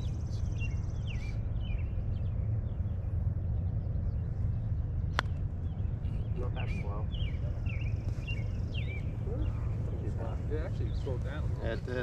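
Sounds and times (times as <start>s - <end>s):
small birds chirping: 0.0s - 12.0s
steady low rumble: 0.0s - 12.0s.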